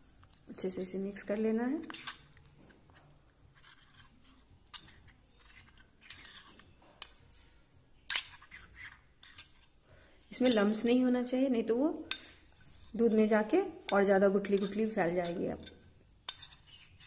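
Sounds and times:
spoon scraping in ceramic bowl: 1.8s - 7.2s, 8.1s - 11.0s, 12.0s - 17.0s.

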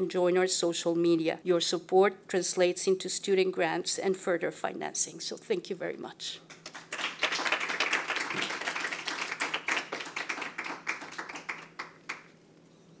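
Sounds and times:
audience applauding: 6.6s - 12.3s.

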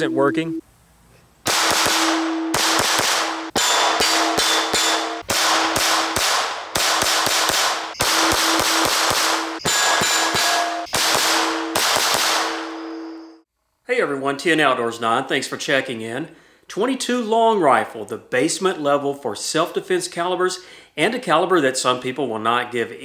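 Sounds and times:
pistol shots: 1.4s - 13.0s
steel targets ringing: 1.6s - 13.4s.

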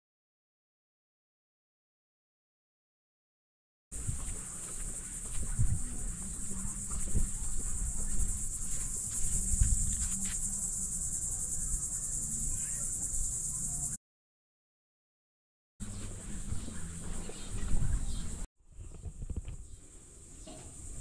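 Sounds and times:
insects trilling: 4.0s - 14.0s, 19.2s - 21.0s.

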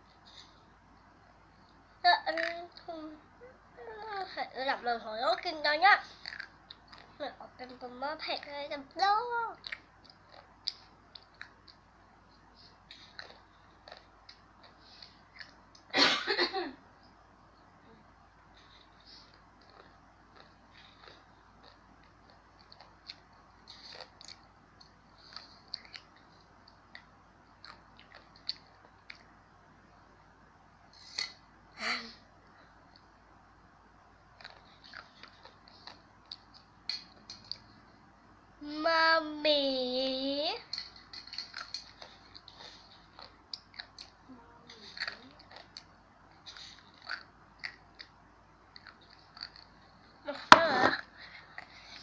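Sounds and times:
child chewing crunchy snack: 5.4s - 15.9s, 18.6s - 29.4s, 34.3s - 37.8s, 40.6s - 52.0s.

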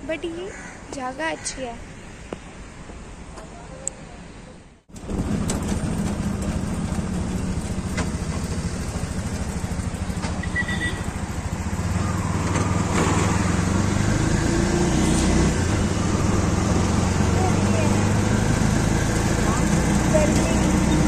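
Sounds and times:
small engine running: 5.0s - 14.8s, 16.6s - 21.0s.

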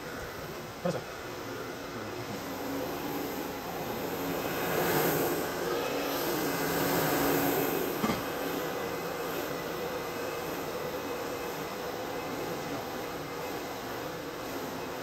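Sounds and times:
carpet scrubber whirring: 0.0s - 15.0s.

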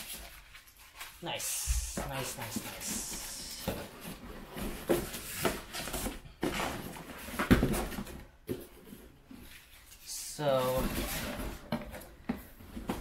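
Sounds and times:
wrapping rustling: 0.0s - 7.2s.

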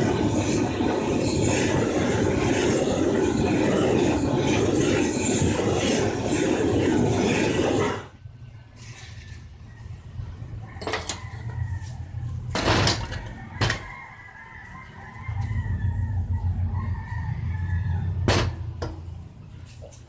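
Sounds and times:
rooster crowing: 9.6s - 18.7s
low steady rumble: 15.2s - 19.8s.

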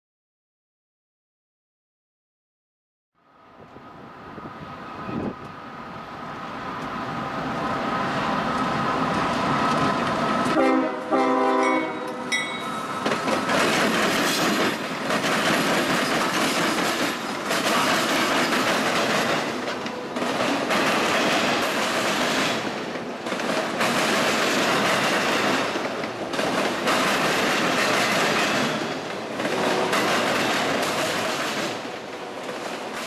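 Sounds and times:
diesel locomotive engine: 3.3s - 33.0s
train horn blasts: 10.5s - 12.5s
train wheels clicking over rail joints: 12.8s - 33.0s.

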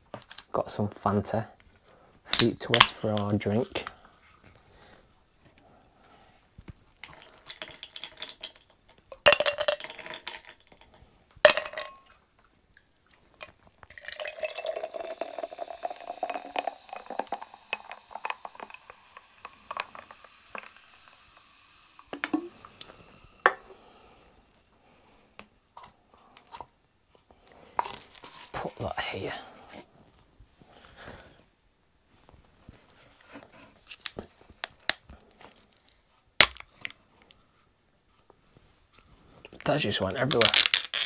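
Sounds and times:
soda pouring and fizzing: 7.0s - 10.8s, 13.4s - 24.7s.

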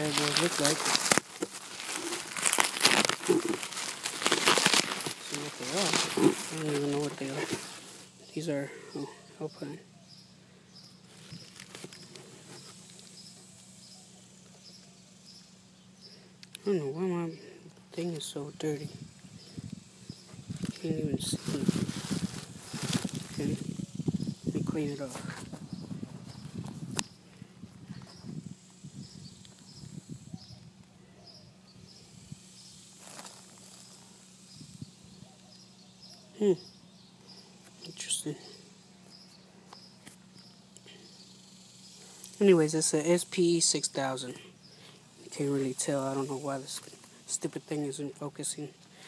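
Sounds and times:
plastic packaging rustling: 0.0s - 8.2s, 11.1s - 13.1s, 20.4s - 23.9s.

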